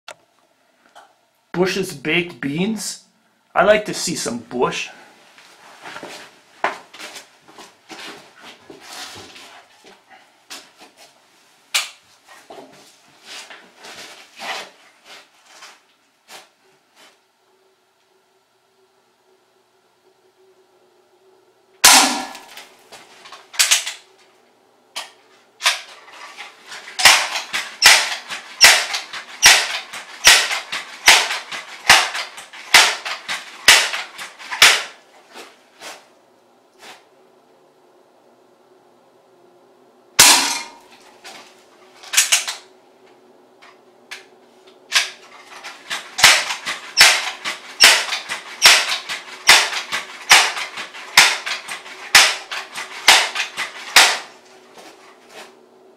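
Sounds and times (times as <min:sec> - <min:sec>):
pellet gun shots at tin can: 0:21.8 - 0:22.5, 0:27.0 - 0:34.0, 0:40.2 - 0:40.8, 0:46.2 - 0:54.3
handling clicks and knocks: 0:25.0 - 0:34.9, 0:44.9 - 0:54.4
soft rush of noise: 0:35.0 - 0:40.2.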